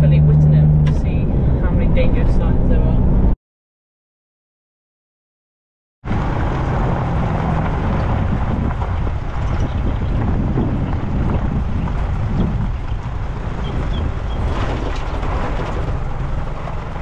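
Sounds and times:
vehicle rolling on dirt road: 6.0 - 17.0
wind on microphone: 6.1 - 17.0.

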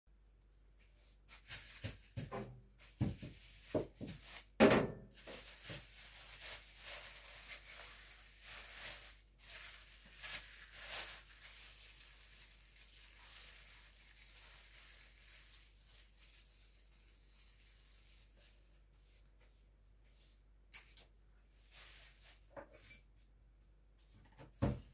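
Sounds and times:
plastic wrap crinkling: 1.3 - 18.9, 20.8 - 22.6.

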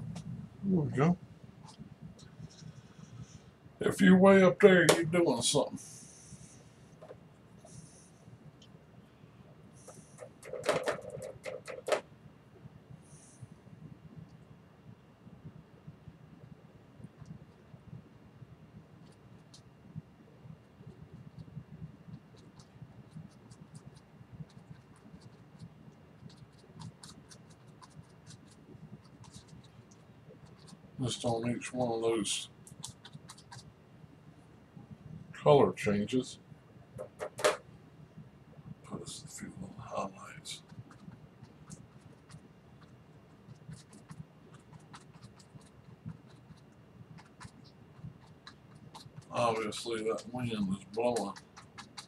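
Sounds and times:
brush tapping on canvas: 9.8 - 12.1
paintbrush strokes on canvas: 20.8 - 33.8, 38.9 - 52.0.

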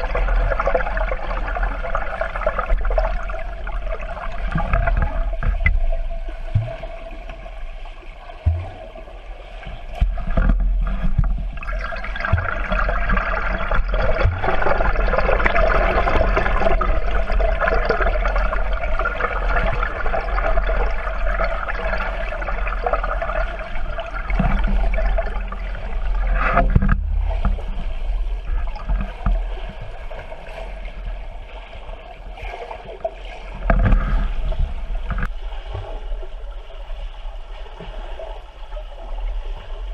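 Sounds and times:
underwater bubbles: 0.0 - 39.9
underwater water churning: 0.0 - 39.9
low underwater knocks: 2.4 - 20.6, 22.9 - 31.0, 33.2 - 36.3.

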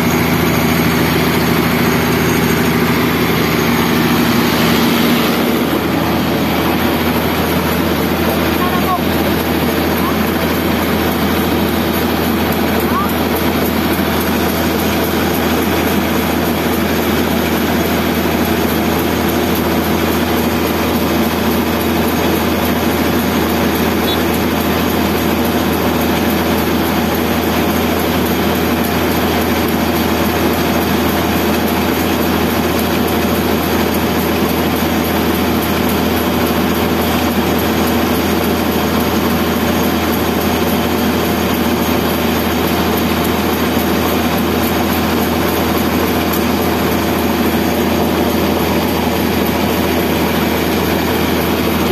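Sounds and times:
machine engine drone: 0.0 - 51.9.

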